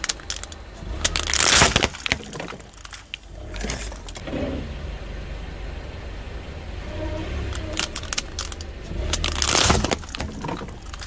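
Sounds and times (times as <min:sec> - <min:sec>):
plastic cracking and snapping: 0:00.0 - 0:04.2, 0:07.8 - 0:11.0
car rumbling: 0:00.0 - 0:11.0.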